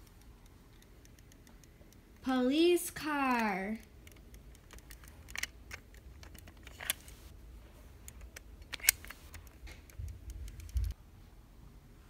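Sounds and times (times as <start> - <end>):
plastic toys clicking: 0.0 - 2.2, 3.3 - 7.2, 8.0 - 11.0.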